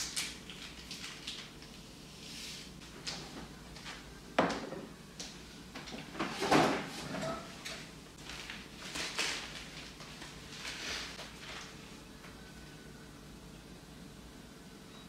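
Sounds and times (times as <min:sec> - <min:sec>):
newspaper rustling: 0:08.2 - 0:12.0.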